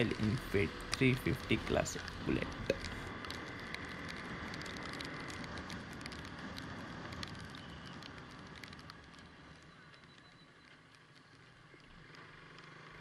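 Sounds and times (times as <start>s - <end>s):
motorcycle engine: 0.0s - 7.1s
raindrops ticking on camera: 0.0s - 13.0s.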